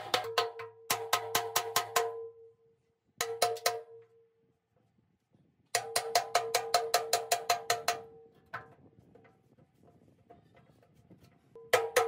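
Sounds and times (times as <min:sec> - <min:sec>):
hammer striking steel: 0:11.6 - 0:12.0.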